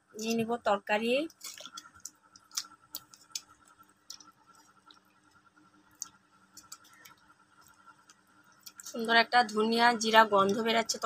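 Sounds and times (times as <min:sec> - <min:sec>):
faint steady hum: 0:00.0 - 0:11.0
liquid sloshing: 0:01.3 - 0:08.9.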